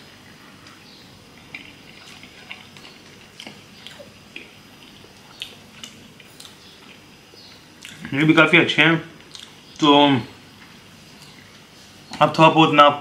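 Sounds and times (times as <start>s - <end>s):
man chewing with mouth smacks: 0.6s - 8.1s, 9.2s - 9.8s.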